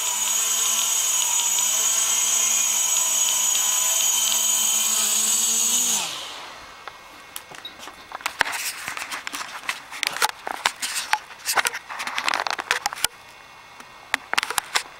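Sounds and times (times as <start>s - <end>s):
quadcopter motors spinning down: 0.0s - 6.8s
sharp clicks and knocks: 14.1s - 14.9s.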